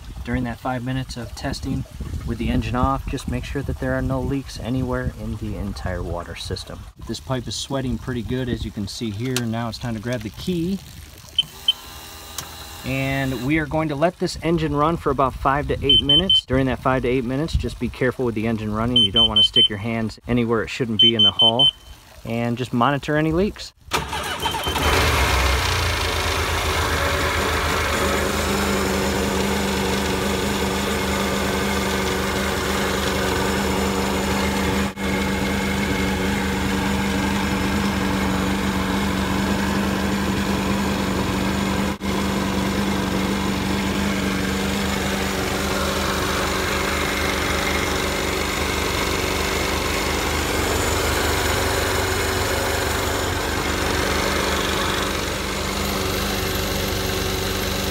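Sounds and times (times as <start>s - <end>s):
jet ski engine running: 11.2s - 13.7s, 15.7s - 16.4s, 18.8s - 19.7s, 24.0s - 57.9s.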